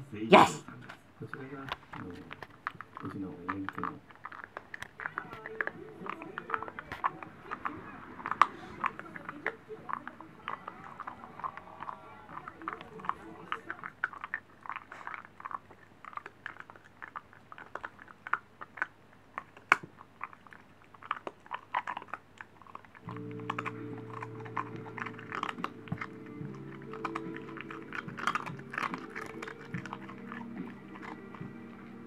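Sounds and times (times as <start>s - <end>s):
dog crunching a hard treat: 0.7s - 32.0s
background music: 23.1s - 32.0s.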